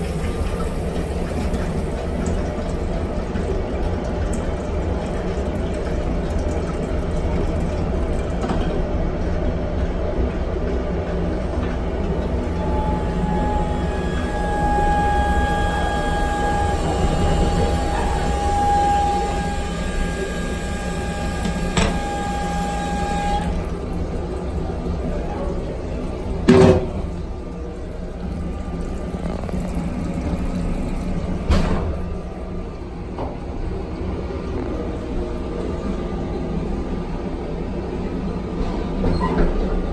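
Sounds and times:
plumbing whine: 0:11.4 - 0:37.7.

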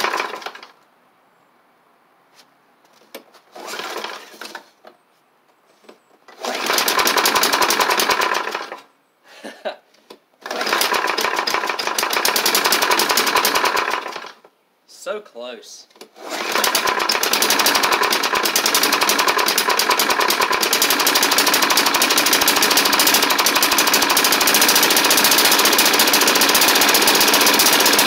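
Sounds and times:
mower engine starting and stalling: 0:00.0 - 0:00.7, 0:03.5 - 0:04.7, 0:06.3 - 0:08.9, 0:10.4 - 0:14.4, 0:16.1 - 0:28.0.

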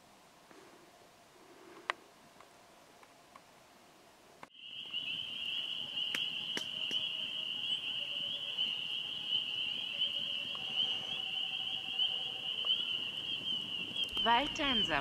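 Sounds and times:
insect high-pitched trill: 0:04.5 - 0:15.0.

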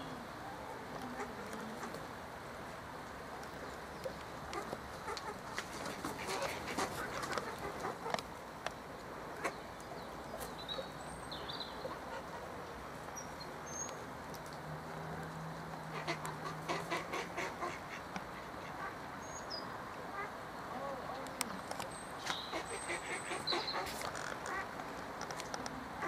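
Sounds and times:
ducks quacking: 0:04.5 - 0:08.2, 0:15.9 - 0:19.1, 0:22.5 - 0:24.8
wings flapping: 0:04.6 - 0:08.2.

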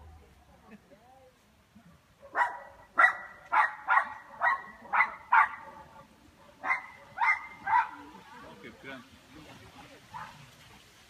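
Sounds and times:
dog barking: 0:02.2 - 0:08.1.

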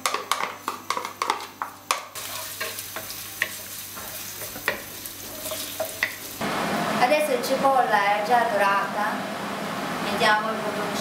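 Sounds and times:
onion sizzling in hot oil: 0:00.1 - 0:07.1
spatula scraping wok: 0:00.2 - 0:06.4.

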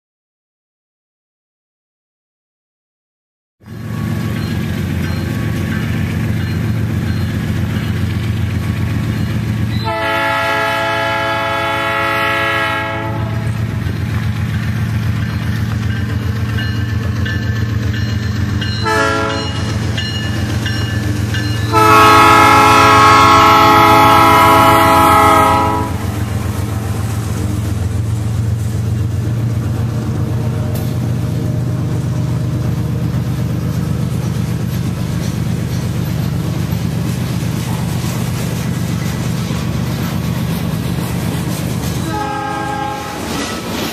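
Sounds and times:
diesel locomotive engine rumbling: 0:03.6 - 0:43.9
train wheels clacking on rail joints: 0:03.9 - 0:11.9, 0:13.3 - 0:43.9
locomotive horn blasts: 0:09.8 - 0:13.6, 0:18.8 - 0:19.8, 0:21.6 - 0:26.2, 0:42.0 - 0:43.4.

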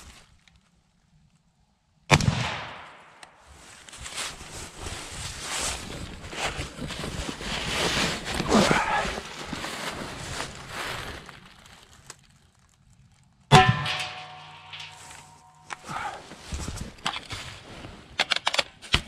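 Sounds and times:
rifle shot: 0:02.1 - 0:03.2
footsteps through dry leaves: 0:03.4 - 0:12.8.

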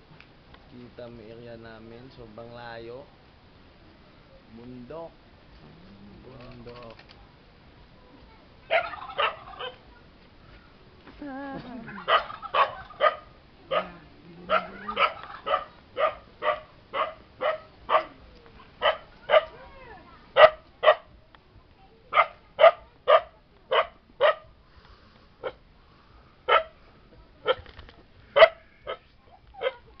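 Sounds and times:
dog barking: 0:08.7 - 0:09.8, 0:11.9 - 0:18.2, 0:18.8 - 0:19.6, 0:20.4 - 0:21.1, 0:22.1 - 0:24.5, 0:26.5 - 0:26.8, 0:28.4 - 0:29.9.

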